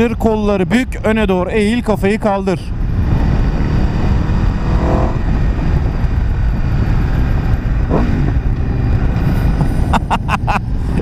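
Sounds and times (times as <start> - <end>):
wind noise on microphone: 0.0 - 11.0
motorcycle engine running: 2.7 - 9.9.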